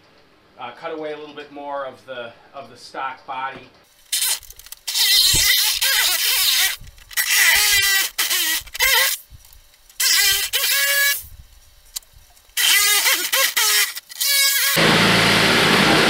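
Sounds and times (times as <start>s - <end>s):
reciprocating saw cutting plastic: 4.0s - 16.0s.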